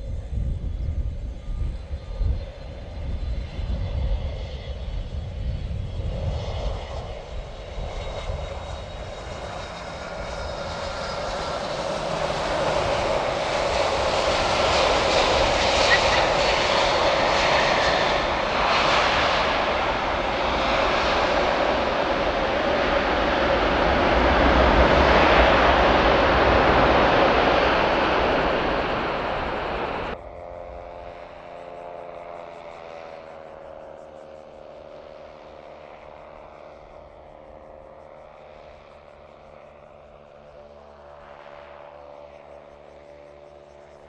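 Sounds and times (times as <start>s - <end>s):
jet engines roaring: 0.0s - 30.2s.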